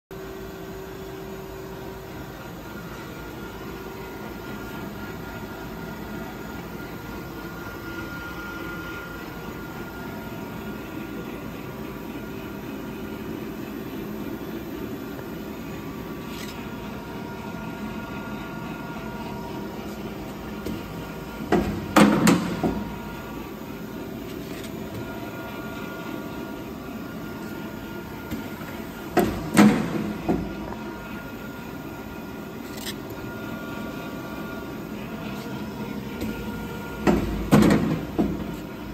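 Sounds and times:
conveyor mechanical hum: 0:00.1 - 0:38.9
pneumatic pusher knocks and clatter: 0:20.6 - 0:22.9, 0:28.3 - 0:30.6, 0:37.0 - 0:38.7.

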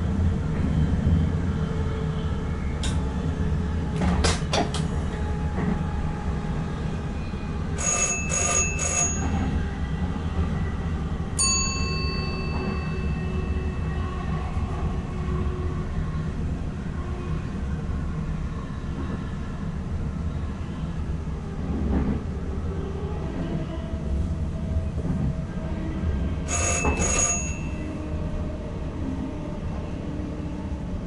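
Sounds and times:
train low rumble: 0:00.0 - 0:31.0
bell-like rings: 0:07.8 - 0:09.4, 0:11.4 - 0:13.5, 0:26.5 - 0:27.8
ringing chime: 0:26.5 - 0:27.8.

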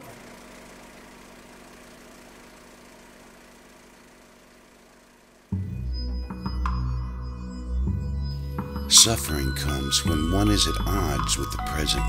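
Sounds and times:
faint mechanical whirr: 0:00.0 - 0:05.6.

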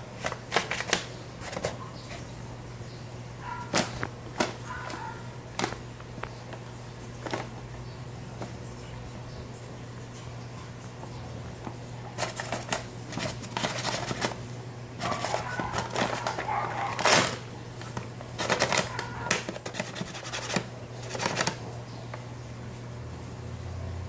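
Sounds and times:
paper bag crinkling: 0:00.0 - 0:02.3, 0:03.6 - 0:07.7, 0:12.1 - 0:21.8.

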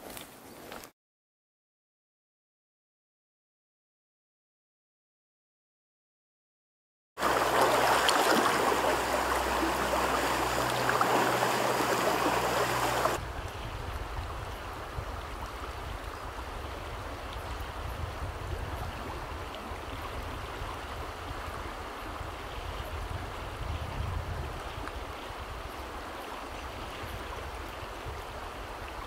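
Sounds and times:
stream water flowing: 0:07.2 - 0:29.0.

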